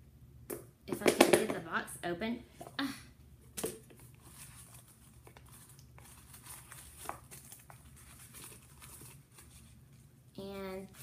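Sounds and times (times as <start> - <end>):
packaging rustling and crinkling: 3.9 - 10.1.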